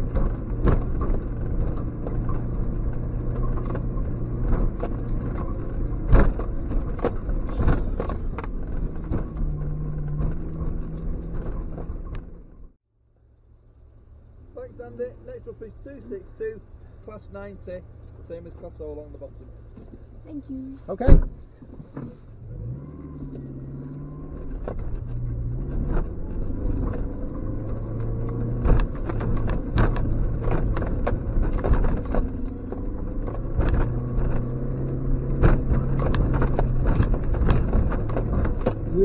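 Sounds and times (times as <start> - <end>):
knocks and rattles over bumps: 0.0 - 12.8, 21.0 - 22.4, 23.1 - 39.0
car engine driving: 0.0 - 39.0.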